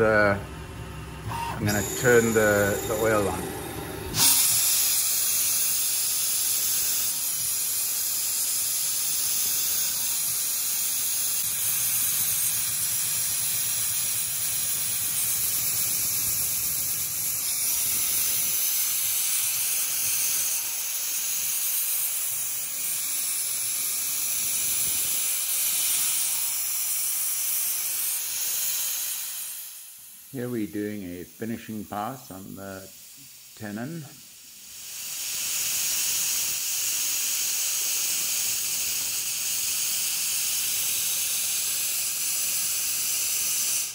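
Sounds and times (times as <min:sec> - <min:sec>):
coolant spray hissing: 0:04.1 - 0:43.9.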